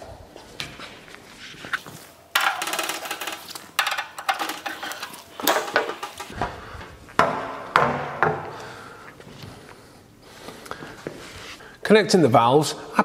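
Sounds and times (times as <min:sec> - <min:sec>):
metal panel clanking and rattling: 0:02.4 - 0:06.4.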